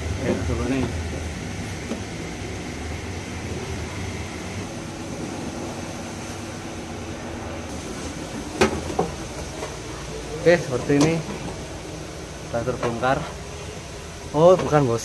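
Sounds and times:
machinery hum and hiss: 0:00.0 - 0:15.0.

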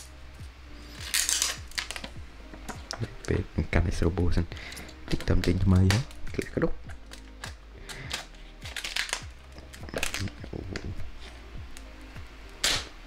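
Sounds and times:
soft background music: 0:00.0 - 0:13.0
plastic film crinkling: 0:00.9 - 0:02.2, 0:05.0 - 0:11.4.

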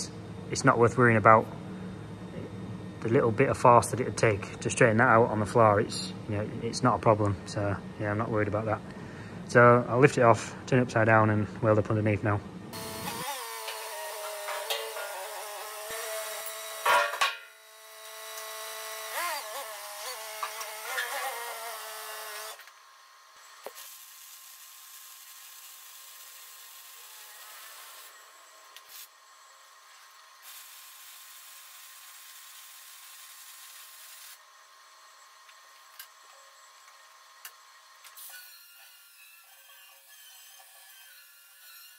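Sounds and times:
forklift engine revving: 0:12.7 - 0:16.2
sharp metal clunk: 0:16.8 - 0:17.5
arc welding hiss: 0:23.6 - 0:28.2, 0:28.8 - 0:29.2, 0:30.4 - 0:34.4.

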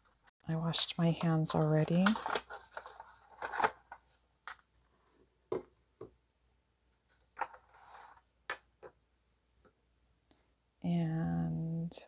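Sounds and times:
soft plastic rub: 0:07.0 - 0:08.3.

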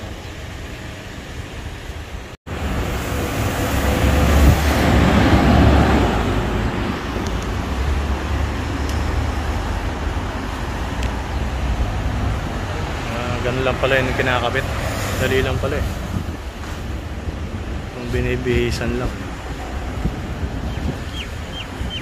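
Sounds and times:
street traffic rumble: 0:00.0 - 0:22.0
vehicle passing: 0:02.5 - 0:16.0.

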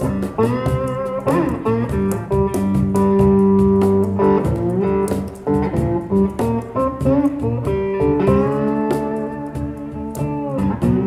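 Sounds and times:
beat slapped on a cajon: 0:00.0 - 0:11.0
blues electric guitar: 0:00.0 - 0:11.0.

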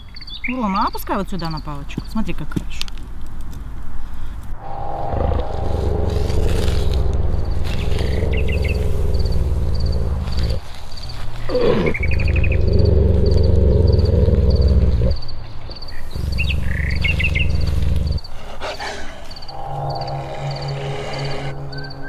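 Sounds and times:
birds chirping: 0:04.6 - 0:12.8, 0:14.6 - 0:18.4
deep animal roar: 0:04.6 - 0:15.2.

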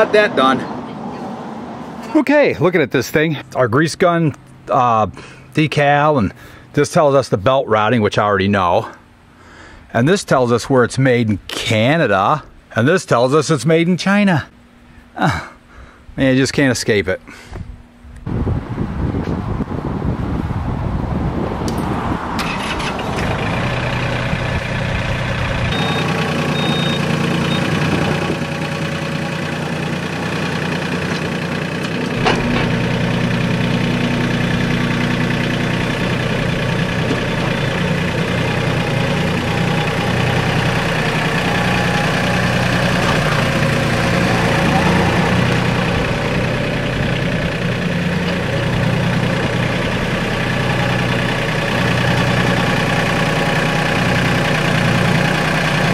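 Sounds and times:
tractor diesel engine running: 0:21.7 - 0:55.9.

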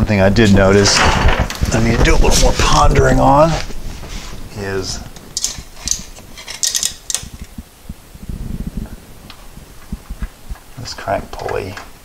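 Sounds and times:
sharp crackles: 0:00.3 - 0:12.0
camera handling rumbles: 0:05.1 - 0:07.6.

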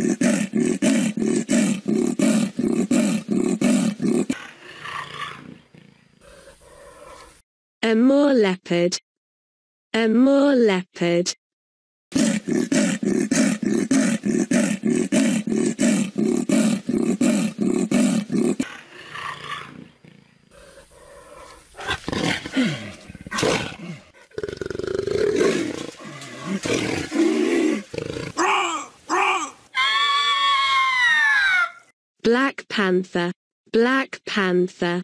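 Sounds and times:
leopard sawing grunts: 0:00.0 - 0:07.3, 0:12.1 - 0:29.6
leopard growls and snarls: 0:00.0 - 0:07.4, 0:12.1 - 0:29.5.

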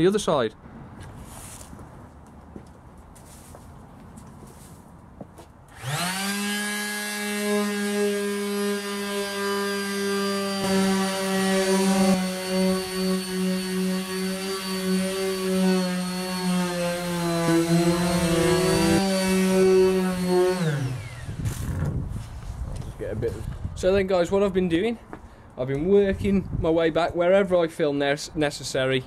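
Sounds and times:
electric sander running: 0:05.7 - 0:21.9.

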